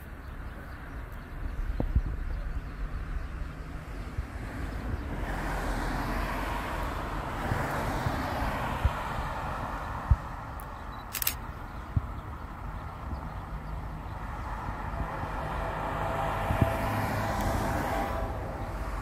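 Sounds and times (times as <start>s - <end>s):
car passing: 0.0s - 19.0s
sharp low thumps: 1.2s - 5.1s.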